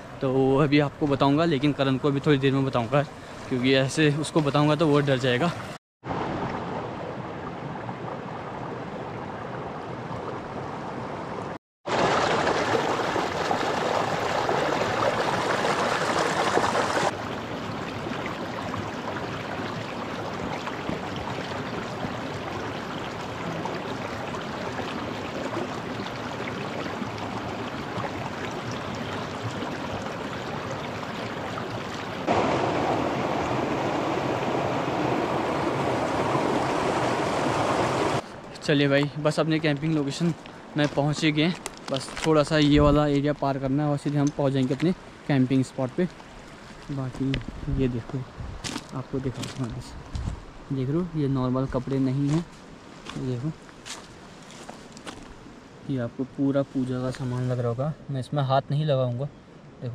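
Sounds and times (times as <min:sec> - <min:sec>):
river rushing: 0:06.1 - 0:42.6.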